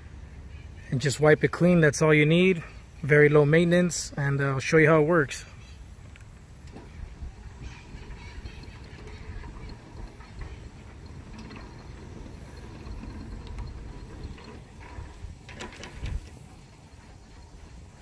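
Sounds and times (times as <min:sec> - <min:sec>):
gate motor rumbling: 0:06.6 - 0:18.0
gate clattering: 0:06.7 - 0:16.6.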